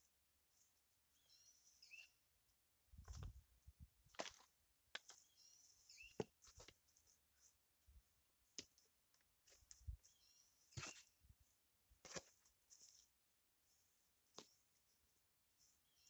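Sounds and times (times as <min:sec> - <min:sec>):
hand trowel scraping soil: 0:10.6 - 0:11.2.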